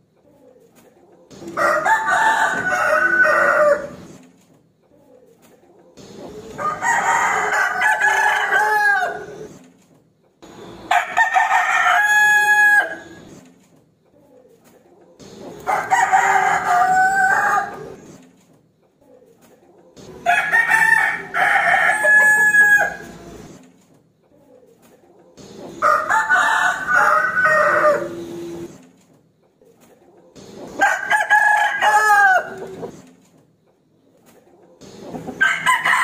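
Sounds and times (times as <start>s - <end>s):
rooster crowing: 1.5s - 4.0s, 6.6s - 9.5s, 10.9s - 13.2s, 15.6s - 18.0s, 20.2s - 23.3s, 25.8s - 28.6s, 30.8s - 32.9s, 35.4s - 36.0s.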